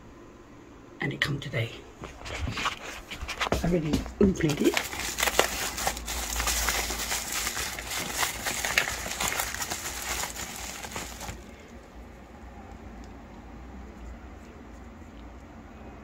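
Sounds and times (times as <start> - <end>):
plastic packaging crinkling: 4.3 - 11.9.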